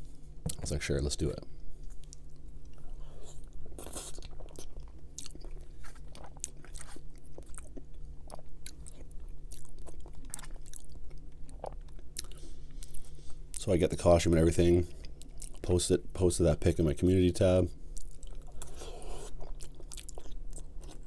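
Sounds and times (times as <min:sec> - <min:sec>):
faint low hum: 0:00.0 - 0:21.0
close chewing mouth sounds: 0:01.8 - 0:13.7, 0:14.9 - 0:15.7, 0:17.9 - 0:21.0.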